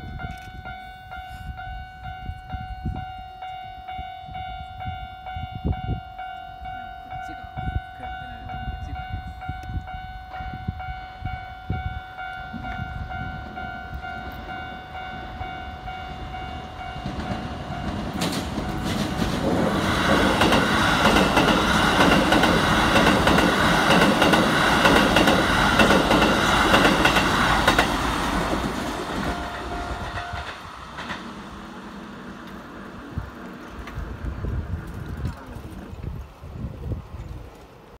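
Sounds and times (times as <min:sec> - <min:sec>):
train wheels clattering over rails: 0:16.0 - 0:32.7.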